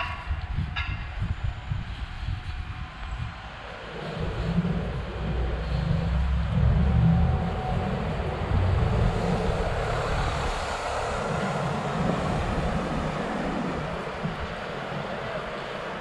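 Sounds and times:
car passing close by: 3.8 - 16.0.

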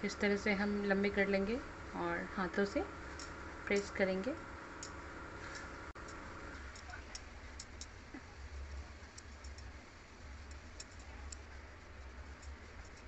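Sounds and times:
hands shaping soft mixture: 5.4 - 13.0.

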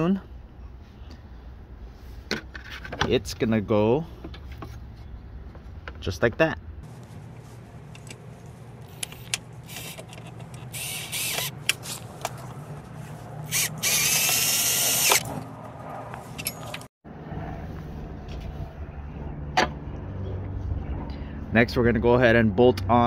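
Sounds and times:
low hum: 6.8 - 21.6.

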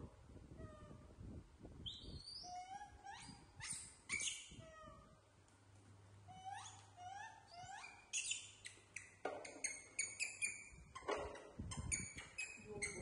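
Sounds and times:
baby monkeys crying: 6.3 - 8.3
high-pitched squeaks: 6.4 - 13.0.

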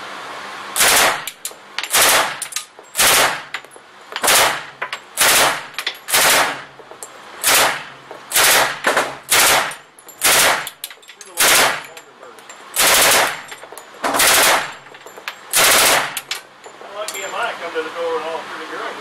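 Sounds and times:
automatic gunfire bursts: 0.8 - 1.3, 1.9 - 2.4, 3.0 - 3.5, 4.2 - 6.7, 7.4 - 10.7, 11.4 - 11.9, 12.8 - 13.5, 14.1 - 14.8, 15.5 - 16.2.

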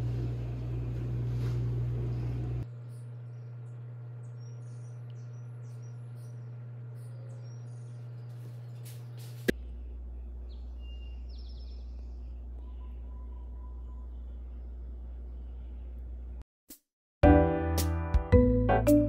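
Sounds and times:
low electrical hum: 0.0 - 16.4
faint high chirps: 9.7 - 16.0.

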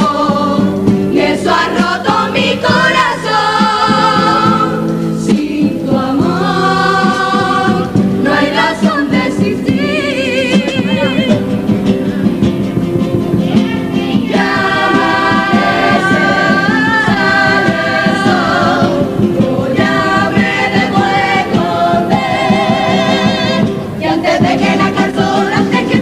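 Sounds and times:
choir singing in harmony: 0.0 - 11.6, 13.8 - 26.0
steady beat: 10.6 - 26.0.

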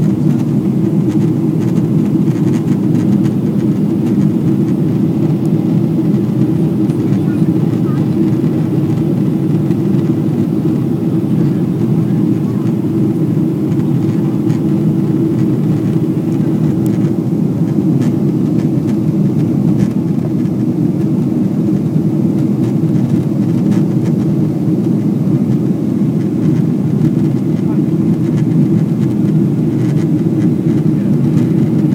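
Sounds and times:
airplane cabin rumble: 0.0 - 31.9.

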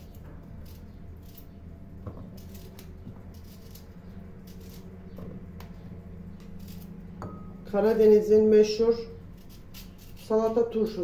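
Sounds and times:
steady low hum: 0.0 - 11.0
knife slicing cucumber: 9.3 - 10.6.

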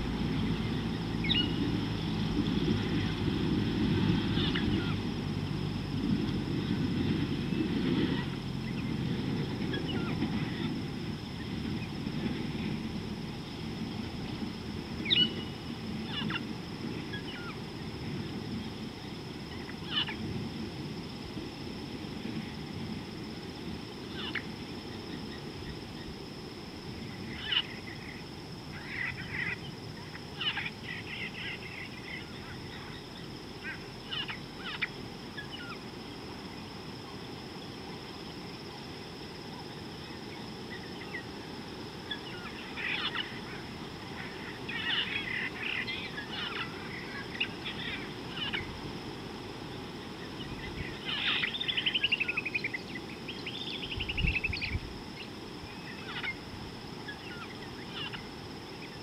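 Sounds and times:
birds chirping: 0.0 - 3.3, 15.0 - 18.9, 42.1 - 48.8, 50.2 - 56.4
low outdoor rumble: 0.0 - 59.0.

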